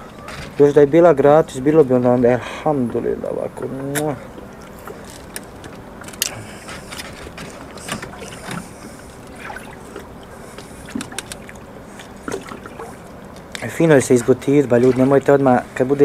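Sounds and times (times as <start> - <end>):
steady background noise: 0.0 - 16.0
mouth clicks and smacks: 3.9 - 4.5.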